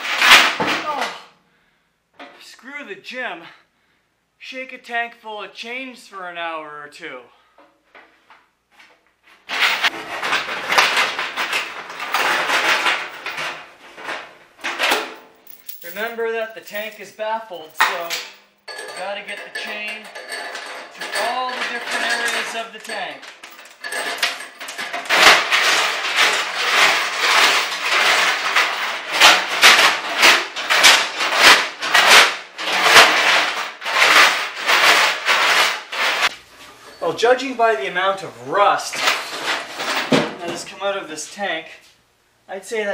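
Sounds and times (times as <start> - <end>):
chains clattering in metal tank: 9.5 - 36.3.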